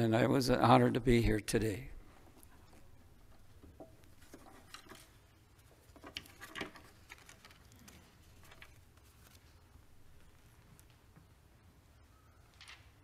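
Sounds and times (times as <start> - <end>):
papers rustling: 2.4 - 11.1.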